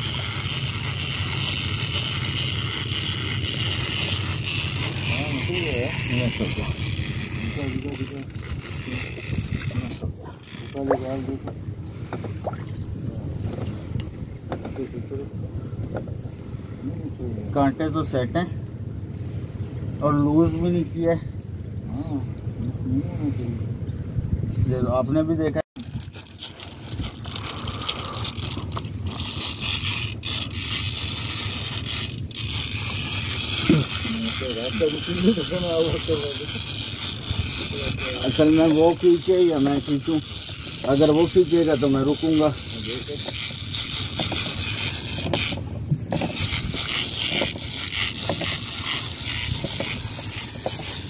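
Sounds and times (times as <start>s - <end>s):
fishing reel ratcheting: 0.0s - 11.5s, 25.8s - 51.0s
boat engine hum: 0.0s - 51.0s
water: 0.0s - 51.0s
wind: 0.0s - 51.0s.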